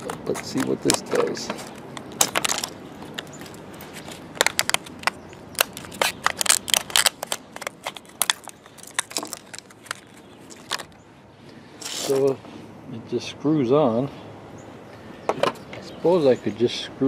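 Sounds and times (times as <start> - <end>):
scissors cutting plastic: 0.0 - 1.4, 4.4 - 10.9
plastic crackling and snapping: 0.0 - 11.0.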